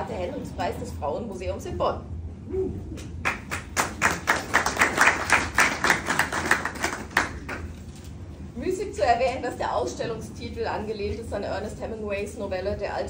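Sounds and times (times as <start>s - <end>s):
small audience clapping: 3.2s - 7.8s.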